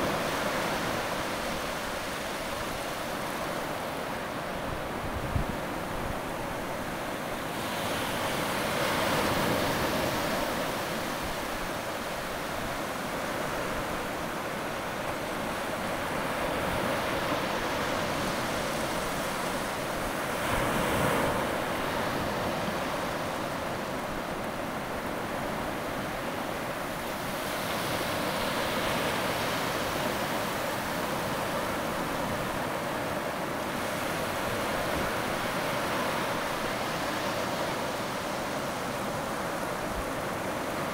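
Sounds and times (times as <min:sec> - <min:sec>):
surf washing over sand: 0:00.0 - 0:40.9.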